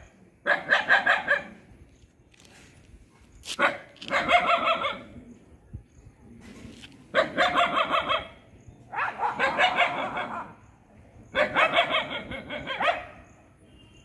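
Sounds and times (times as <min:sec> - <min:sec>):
dogs barking: 0:00.4 - 0:01.6, 0:03.6 - 0:05.2, 0:07.1 - 0:10.6, 0:11.3 - 0:13.4.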